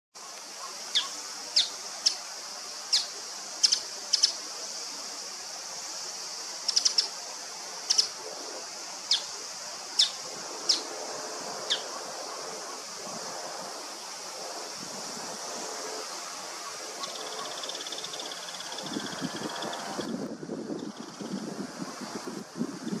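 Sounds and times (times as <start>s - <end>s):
steady hiss: 0.2s - 23.0s
bird sharp high calls: 0.6s - 2.2s, 11.7s - 12.0s.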